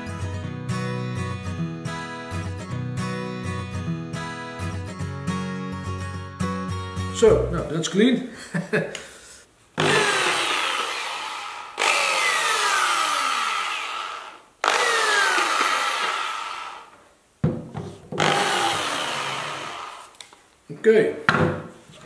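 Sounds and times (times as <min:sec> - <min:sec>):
belt sander motor starting and winding down: 0:09.8 - 0:16.9, 0:18.2 - 0:20.2.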